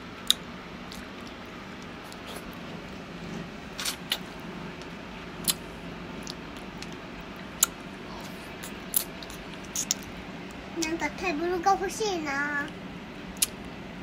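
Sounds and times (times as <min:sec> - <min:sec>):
steady low hum: 0:00.0 - 0:14.0
crackles of biting ice cream coating: 0:00.2 - 0:02.6, 0:03.8 - 0:10.6, 0:13.3 - 0:13.7.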